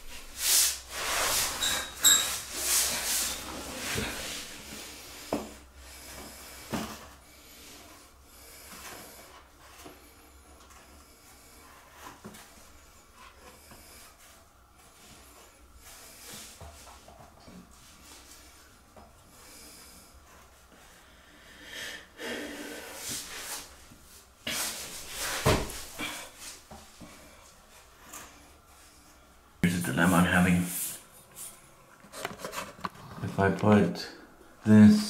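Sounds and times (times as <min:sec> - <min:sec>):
rustling and handling noises: 0:29.9 - 0:33.8.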